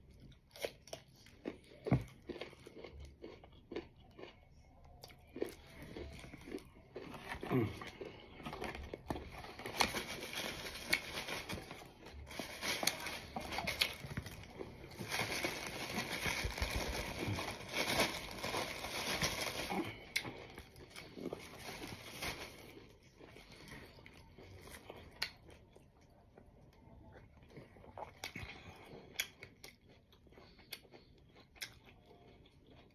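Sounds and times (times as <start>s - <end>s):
crinkling and rustling: 8.4s - 20.0s, 21.3s - 22.8s.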